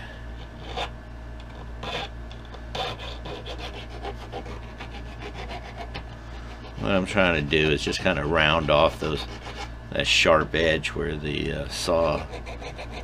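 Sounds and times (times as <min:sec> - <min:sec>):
hand file rasping on metal: 0:01.8 - 0:02.1, 0:02.7 - 0:09.7, 0:12.0 - 0:13.0.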